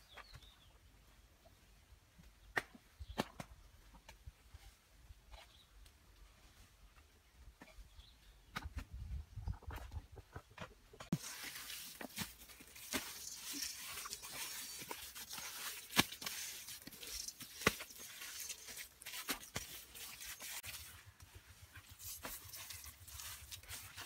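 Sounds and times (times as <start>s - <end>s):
wet mud squelching and slapping: 11.1s - 21.0s, 21.8s - 24.0s.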